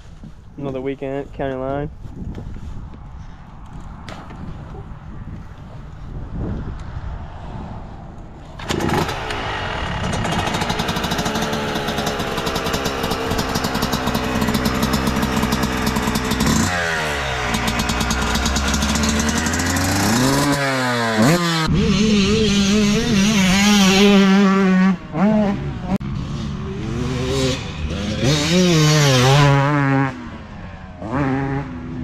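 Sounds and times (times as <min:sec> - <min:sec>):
motocross bike kick-started: 0:08.5 - 0:24.4
two-stroke engine revving: 0:08.6 - 0:30.4, 0:31.0 - 0:32.0.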